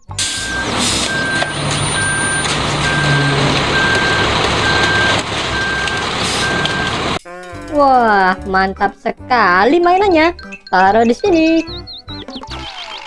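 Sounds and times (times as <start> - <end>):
concrete mixer truck running: 0.0 - 7.2
reversing alarm beeping: 0.2 - 7.2.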